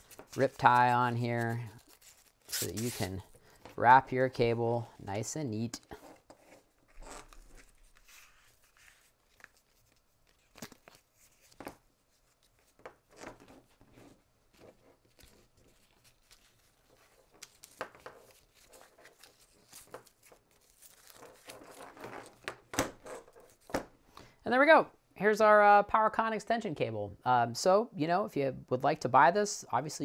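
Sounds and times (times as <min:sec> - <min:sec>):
cable rustling: 0:00.0 - 0:03.9.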